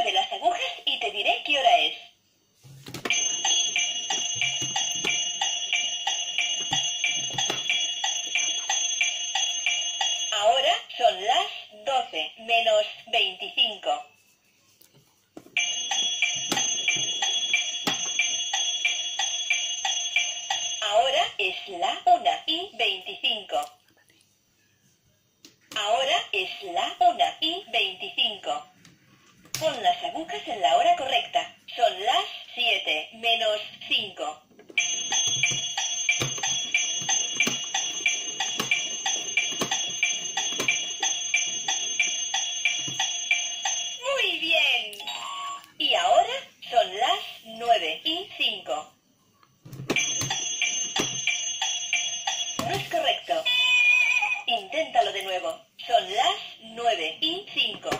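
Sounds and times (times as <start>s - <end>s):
electronic toy tune with beeps: 34.8s - 44.0s.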